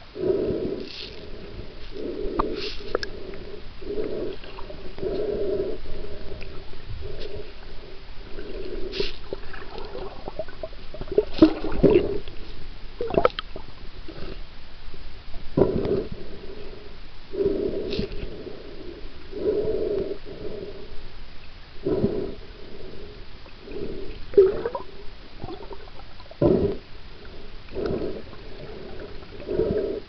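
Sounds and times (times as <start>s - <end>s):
muffled water sloshing underwater: 0.0s - 30.0s.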